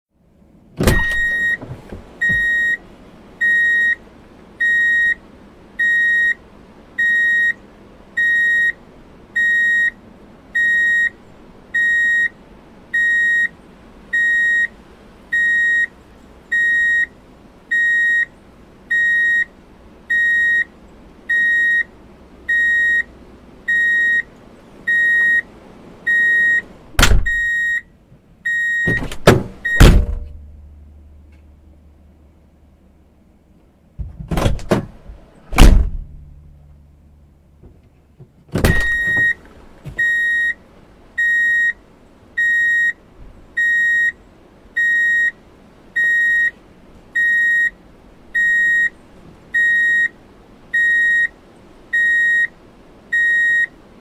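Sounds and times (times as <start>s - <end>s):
low background noise: 0.1s - 54.0s
loud thumps: 0.8s - 2.5s, 26.9s - 27.5s, 28.8s - 30.6s, 34.0s - 36.7s, 38.5s - 40.1s
vehicle reverse beeper: 1.0s - 1.6s, 2.2s - 2.8s, 3.4s - 4.0s, 4.6s - 5.2s, 5.8s - 6.4s, 7.0s - 7.6s, 8.2s - 8.8s, 9.4s - 10.0s, 10.6s - 11.2s, 11.8s - 12.3s, 13.0s - 13.5s, 14.1s - 14.7s, 15.3s - 15.9s, 16.5s - 17.1s, 17.7s - 18.3s, 18.9s - 19.5s, 20.1s - 20.7s, 21.3s - 21.9s, 22.5s - 23.1s, 23.7s - 24.3s, 24.9s - 25.5s, 26.1s - 26.7s, 27.3s - 27.9s, 28.5s - 29.9s, 38.7s - 39.4s, 40.0s - 40.6s, 41.2s - 41.8s, 42.4s - 43.0s, 43.6s - 44.2s, 44.8s - 45.4s, 46.0s - 46.6s, 47.2s - 47.8s, 48.4s - 49.0s, 49.6s - 50.1s, 50.8s - 51.3s, 52.0s - 52.5s, 53.1s - 53.7s.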